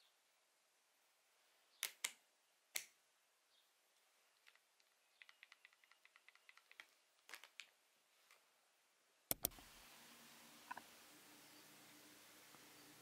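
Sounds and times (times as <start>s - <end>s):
faint outdoor hiss: 0.0s - 13.0s
small plastic clicks: 1.8s - 3.0s, 4.3s - 8.4s, 9.3s - 9.6s
bird chirp: 3.5s - 6.9s, 10.7s - 13.0s.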